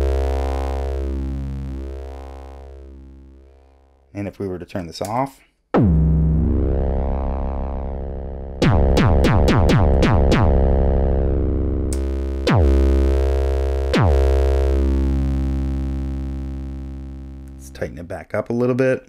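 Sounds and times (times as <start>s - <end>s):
synth percussive hits swooping down: 5.8s - 7.4s, 8.6s - 11.1s.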